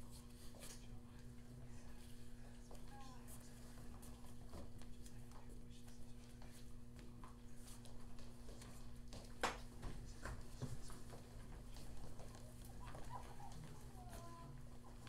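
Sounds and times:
electrical hum: 0.0s - 15.0s
shuffling: 1.9s - 15.0s
faint footsteps on hard floor: 6.2s - 15.0s.

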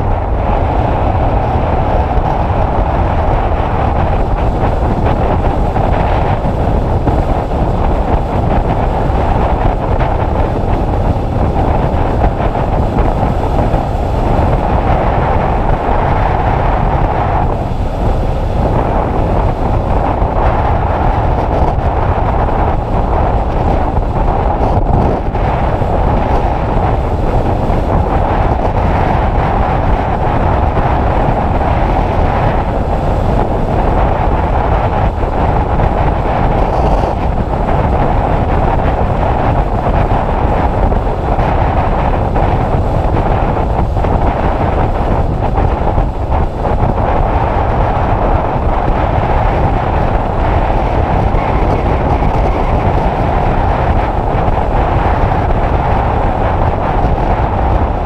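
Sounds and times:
wind noise on microphone: 0.0s - 58.0s.

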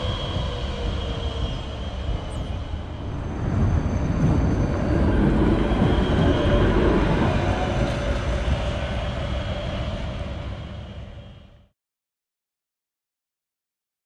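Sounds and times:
tram wheels rumbling: 0.0s - 11.6s.

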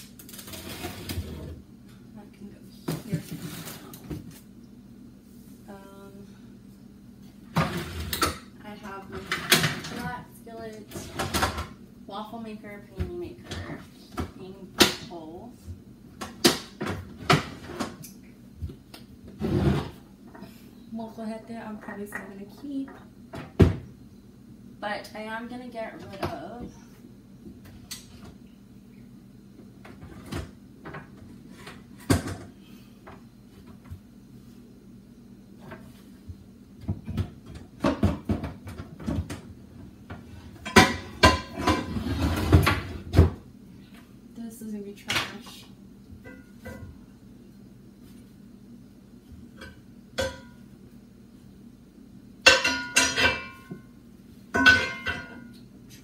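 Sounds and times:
metal pans clanking: 40.6s - 42.6s, 49.6s - 50.6s, 52.4s - 53.8s, 54.5s - 55.5s.

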